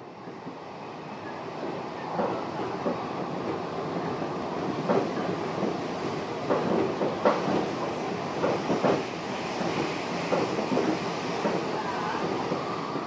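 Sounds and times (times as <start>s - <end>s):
train rumble from inside: 0.0s - 13.0s.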